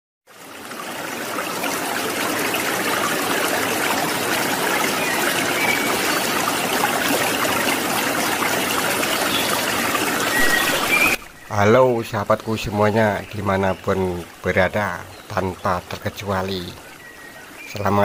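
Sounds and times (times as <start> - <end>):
fountain splashing into pond: 0.3 - 11.4.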